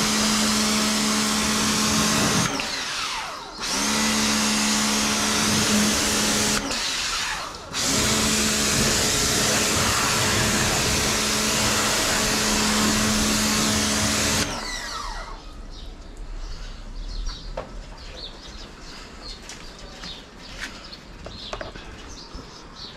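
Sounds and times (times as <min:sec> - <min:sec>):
pressure washer spraying water: 0:00.0 - 0:14.8
motor winding down whine: 0:00.0 - 0:15.6
birds chirping: 0:14.7 - 0:22.9.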